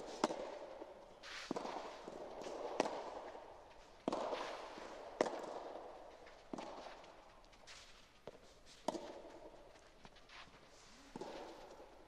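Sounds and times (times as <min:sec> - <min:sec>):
racket hitting tennis ball: 0:00.1 - 0:03.4, 0:04.0 - 0:05.9, 0:08.8 - 0:09.4, 0:11.1 - 0:11.8
shoe scuffs on court: 0:01.2 - 0:02.6, 0:04.1 - 0:05.0, 0:10.0 - 0:11.9.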